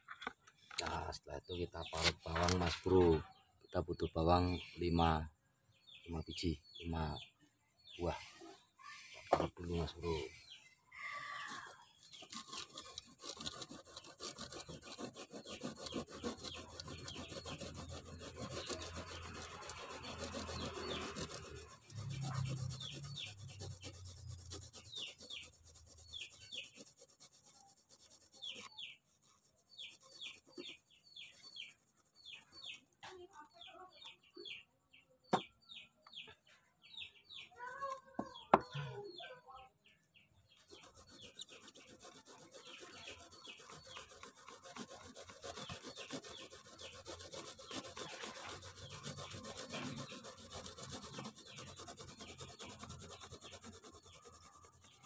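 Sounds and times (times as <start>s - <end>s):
garlic grated on metal grater: 11.4s - 29.0s, 40.7s - 55.0s.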